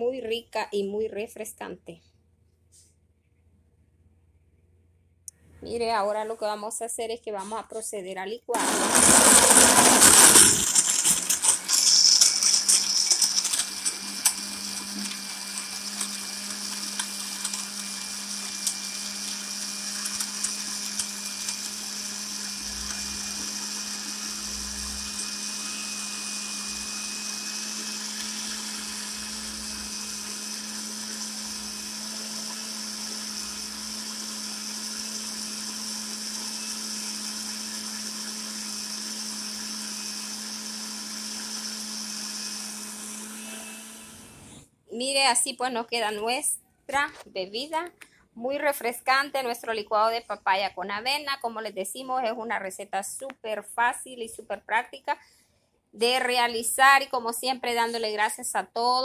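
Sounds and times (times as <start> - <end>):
blender crushing ice: 8.6 - 44.6
blender motor whirring: 8.6 - 44.7.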